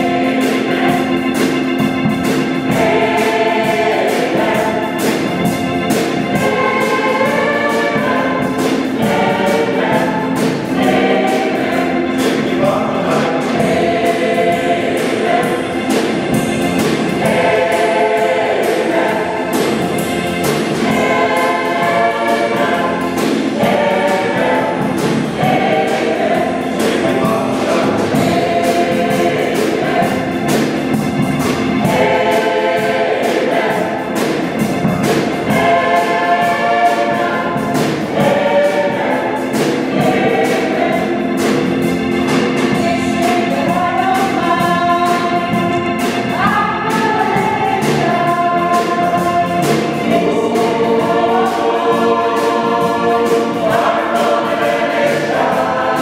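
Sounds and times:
mixed choir singing: 0.0 - 56.0.

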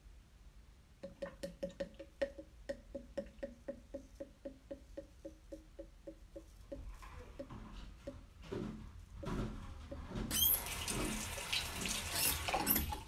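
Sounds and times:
tap running: 1.0 - 13.0.

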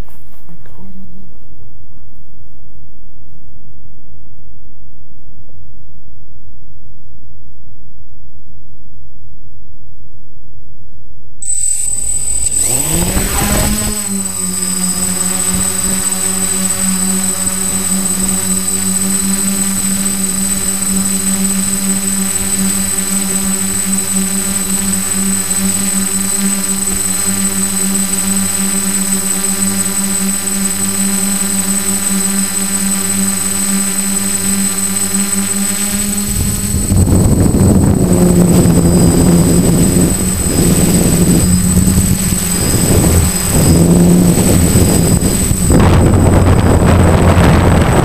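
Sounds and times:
drone motors whining: 11.4 - 48.0.

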